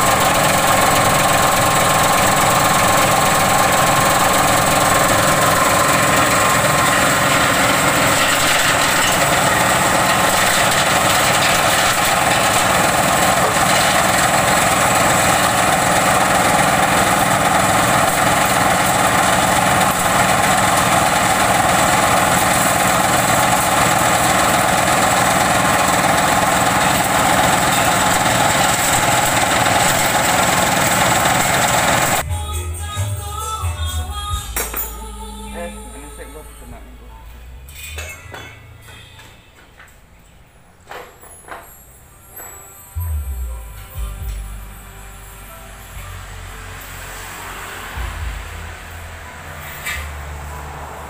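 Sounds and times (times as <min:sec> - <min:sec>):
diesel engine running: 0:00.0 - 0:32.2, 0:43.0 - 0:51.0
waste chopper whining: 0:00.0 - 0:32.2.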